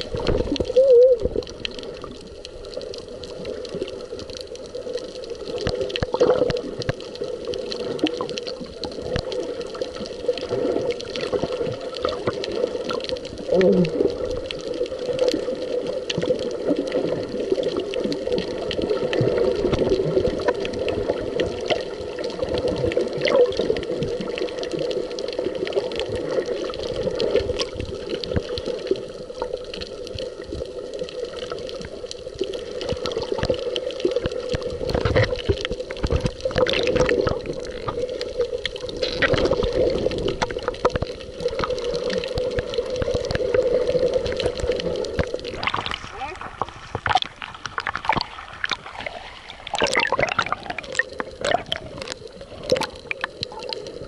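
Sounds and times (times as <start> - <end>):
crackle of fine clicks: 0.0 - 54.0
muffled underwater rush: 0.0 - 54.0.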